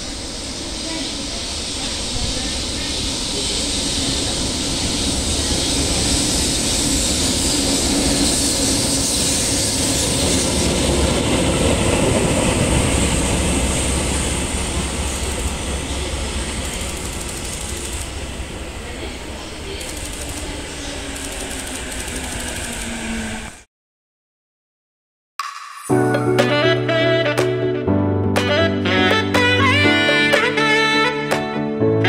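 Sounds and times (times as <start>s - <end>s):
train rumble: 0.0s - 23.6s
wheels on rails: 3.4s - 19.0s, 19.6s - 23.6s.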